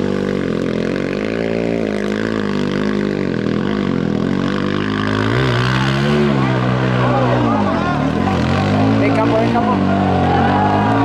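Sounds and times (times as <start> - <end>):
motorcycle engine revving: 0.0 - 11.0
wheel spinning in mud: 0.0 - 11.0.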